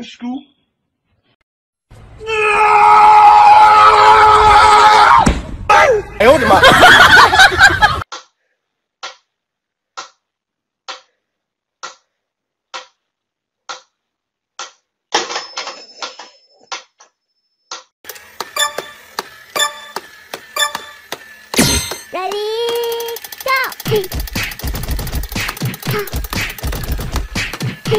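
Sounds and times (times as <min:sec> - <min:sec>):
metronome ticking: 0:18.5 - 0:19.0, 0:19.6 - 0:20.0, 0:20.6 - 0:21.0
steady beeping tones: 0:18.5 - 0:22.2
fast clicks: 0:22.0 - 0:27.9.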